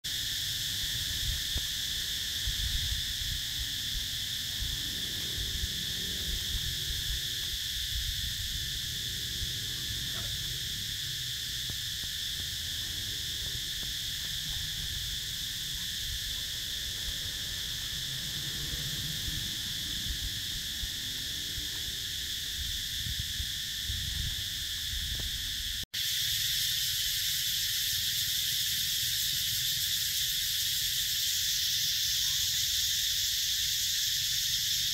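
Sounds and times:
high-pitched insect chorus: 0.0s - 34.9s
low rumble: 2.3s - 24.4s.

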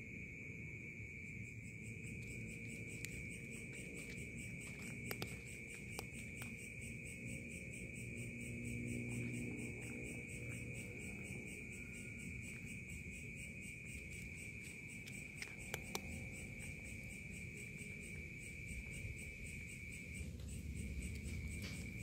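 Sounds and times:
crickets trilling: 0.0s - 22.0s
sharp clicks: 15.0s - 16.3s.

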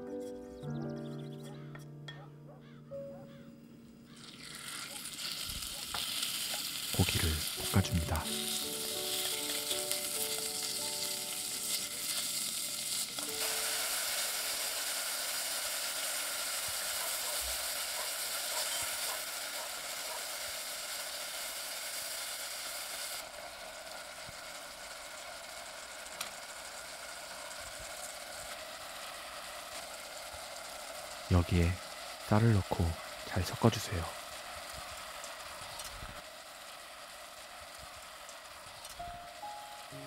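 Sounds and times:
meat sizzling in oil: 4.1s - 32.3s.

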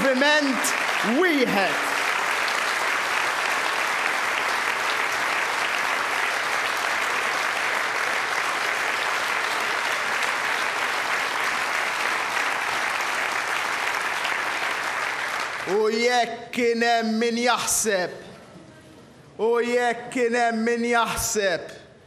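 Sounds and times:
crowd applause: 0.0s - 16.0s.

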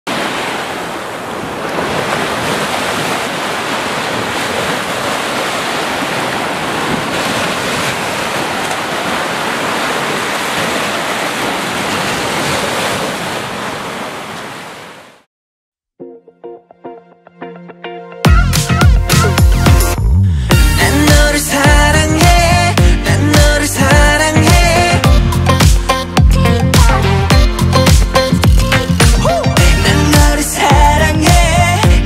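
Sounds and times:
wind: 0.0s - 15.3s
surf washing onto a beach: 0.1s - 15.2s.

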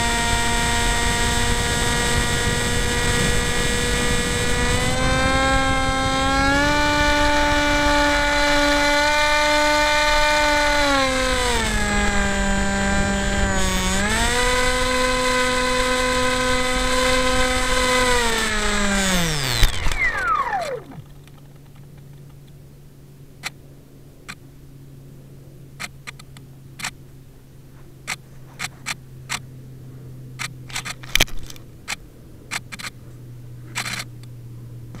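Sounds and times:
electric motor and propeller whining: 0.0s - 35.0s
low steady hum: 0.0s - 35.0s
scattered clicks: 16.8s - 22.6s, 25.8s - 27.0s, 28.0s - 29.5s, 30.4s - 33.0s, 33.7s - 34.3s.

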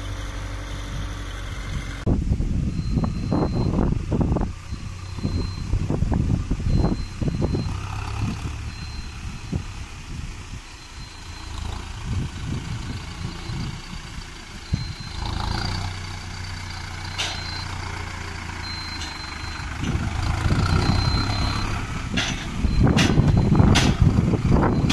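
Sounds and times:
tractor diesel engine running: 0.0s - 24.9s
faint high beep: 2.7s - 3.9s, 4.6s - 5.8s, 20.5s - 21.9s.

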